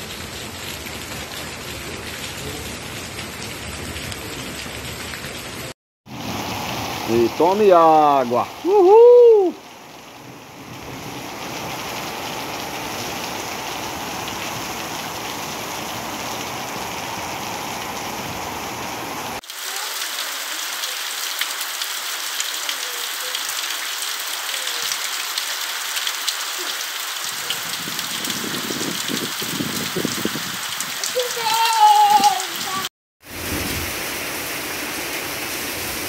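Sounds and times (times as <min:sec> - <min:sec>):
heavy rain pouring: 0:00.0 - 0:36.0
low rumble of wind: 0:09.5 - 0:19.4, 0:27.5 - 0:31.0.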